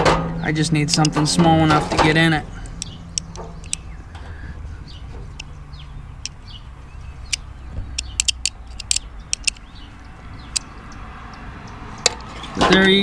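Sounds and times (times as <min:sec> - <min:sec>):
metal tool clicking and scraping: 0:08.0 - 0:09.7.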